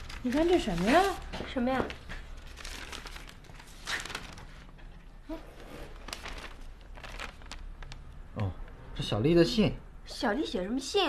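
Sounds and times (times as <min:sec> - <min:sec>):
paper rustling: 0:00.0 - 0:08.1.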